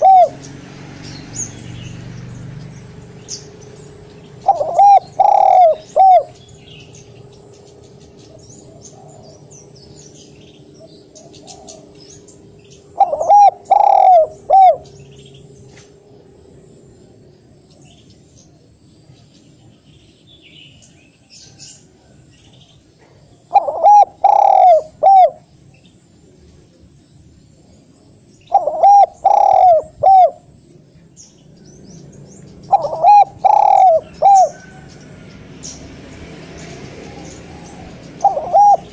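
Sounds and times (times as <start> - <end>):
dove cooing: 0.0 - 0.6, 4.3 - 6.6, 8.2 - 9.5, 10.8 - 12.2, 12.8 - 15.2, 23.0 - 25.5, 28.5 - 30.5, 32.7 - 34.8, 37.0 - 38.9.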